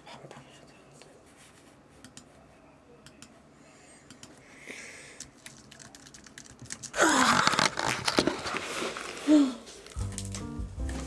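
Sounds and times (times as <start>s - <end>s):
keyboard typing: 5.2s - 7.0s.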